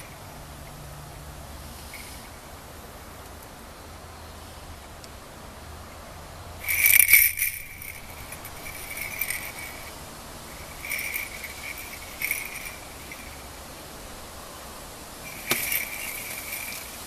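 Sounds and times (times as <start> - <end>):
small jingle bell jingling: 1.9 - 2.3, 6.6 - 13.6, 15.2 - 17.0.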